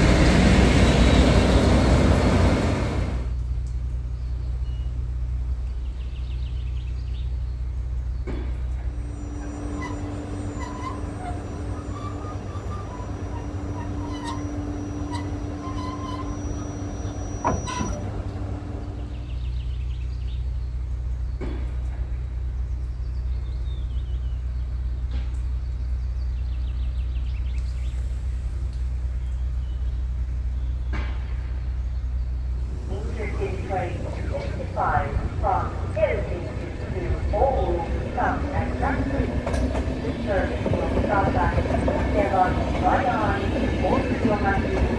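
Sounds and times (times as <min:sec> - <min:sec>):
diesel locomotive engine idling: 0:00.0 - 0:44.9
electric locomotive humming: 0:00.0 - 0:44.9.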